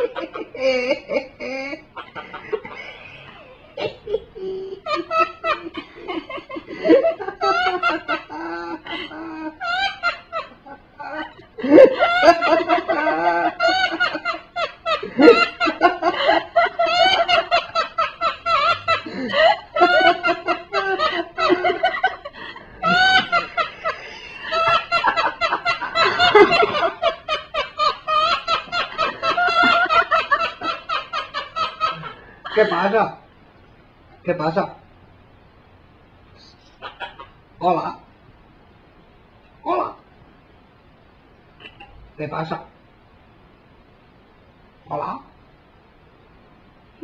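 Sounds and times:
parakeet laugh-like calls: 36.7 - 37.4.

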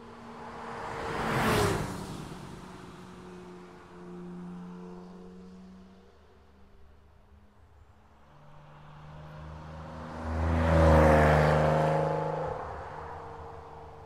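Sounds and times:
road noise: 0.0 - 14.0
car engine passing: 0.1 - 3.6, 8.2 - 14.0.

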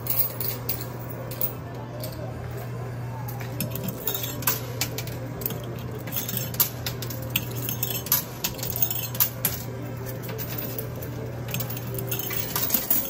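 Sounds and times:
coins clinking: 0.0 - 2.3, 3.6 - 13.0
steady low hum: 0.0 - 13.0.

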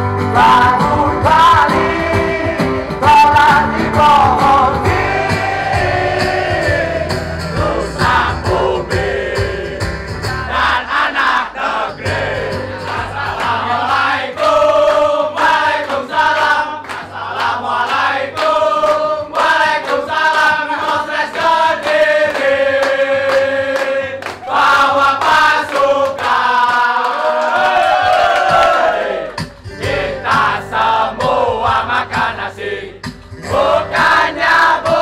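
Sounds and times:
band music: 0.0 - 11.0, 23.6 - 26.0
audience singing in unison: 0.3 - 35.0.

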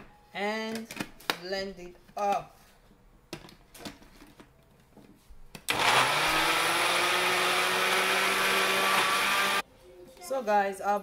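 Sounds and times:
blender motor running: 5.7 - 9.6.

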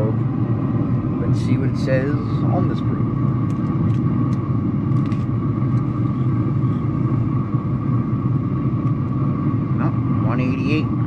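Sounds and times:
pellet smoker rumble and whir: 0.0 - 11.0.

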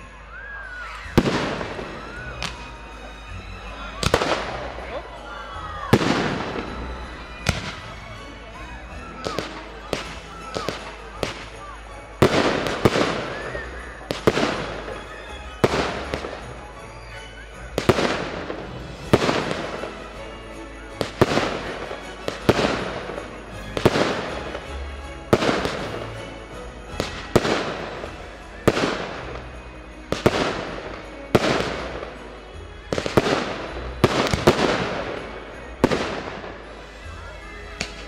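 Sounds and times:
fireworks bursting with bangs: 0.0 - 5.0, 5.8 - 38.0.

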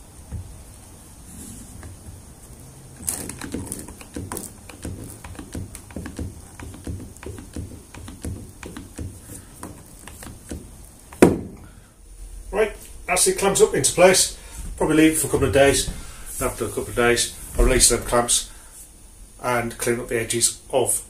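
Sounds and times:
knock: 3.4 - 9.8, 10.5 - 11.6.

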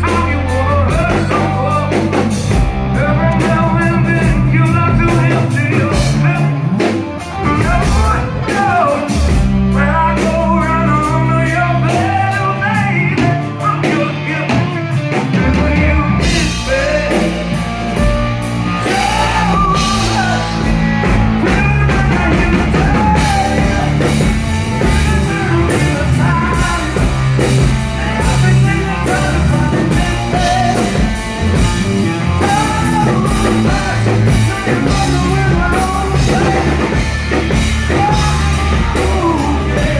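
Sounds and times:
drums: 0.0 - 39.9
electric guitar: 0.0 - 39.9
man singing: 0.0 - 39.9.

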